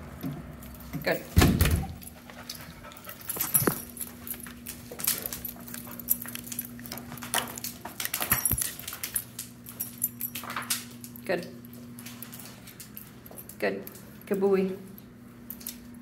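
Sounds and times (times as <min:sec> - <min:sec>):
chain collar jingling: 0:00.6 - 0:11.2, 0:12.0 - 0:14.7
dog panting: 0:01.9 - 0:04.0.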